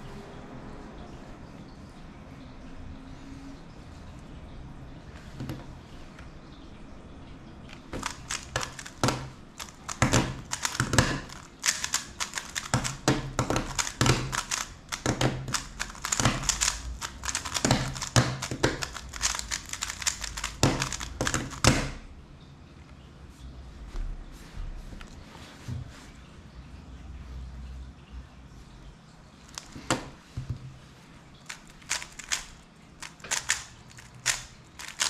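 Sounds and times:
plastic puzzle cube clicking: 0:07.7 - 0:22.0, 0:29.5 - 0:30.1, 0:31.5 - 0:35.0
cube knocking on table: 0:07.9 - 0:22.0.

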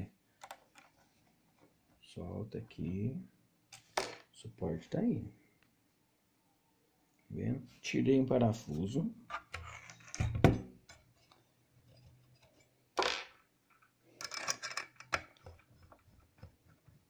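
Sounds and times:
screwdriver clicks and metal scrapes: 0:14.2 - 0:16.0.

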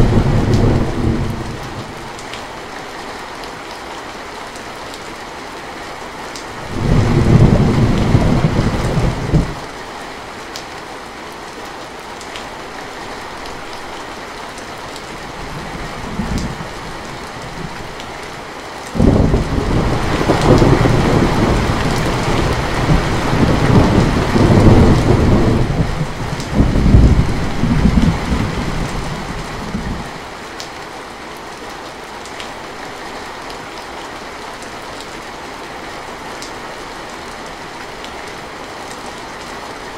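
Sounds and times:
heavy rain: 0:00.0 - 0:39.9
distant thunder rumble: 0:06.6 - 0:09.6, 0:19.0 - 0:30.1
thunder rolling: 0:06.6 - 0:09.6, 0:19.0 - 0:30.0
thunder crack: 0:19.0 - 0:28.5.

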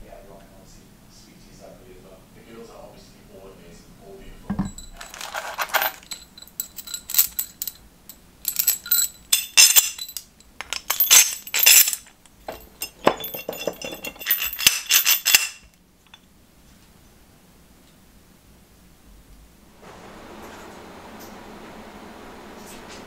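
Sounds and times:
metal clamp parts clinking: 0:04.5 - 0:16.2.

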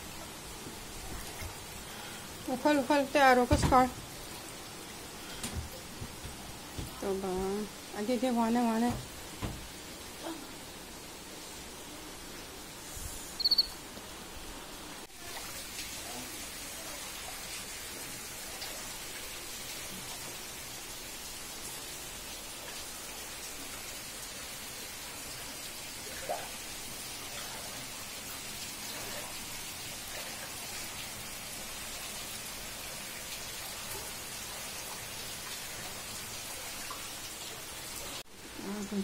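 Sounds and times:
heavy rain falling: 0:00.0 - 0:12.8.

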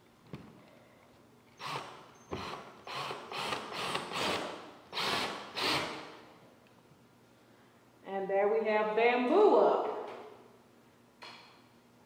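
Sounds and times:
power drill driving screw: 0:01.6 - 0:06.2.

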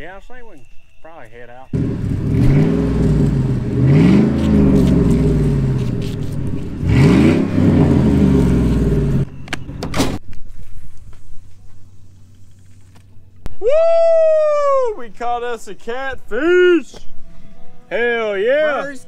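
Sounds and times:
vehicle engine revving: 0:01.8 - 0:09.3.

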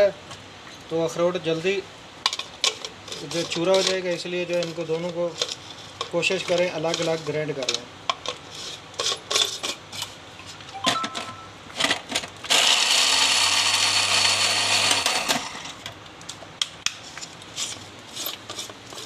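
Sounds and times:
mixer grinder motor whirring: 0:12.4 - 0:15.8.

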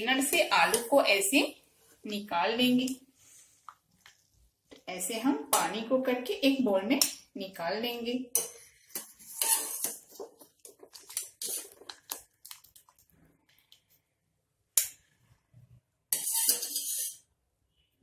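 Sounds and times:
wire strainer scraping steel pot: 0:09.0 - 0:10.2, 0:16.1 - 0:17.3.

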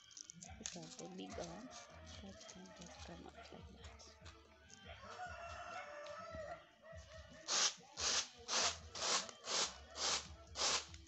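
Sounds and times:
beans swishing on woven tray: 0:07.5 - 0:10.9.

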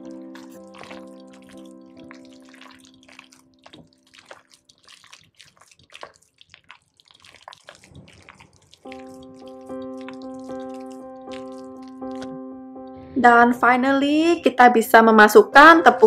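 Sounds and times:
soft background music: 0:00.0 - 0:05.0, 0:08.9 - 0:16.0
minced meat squelching by hand: 0:00.0 - 0:12.4.

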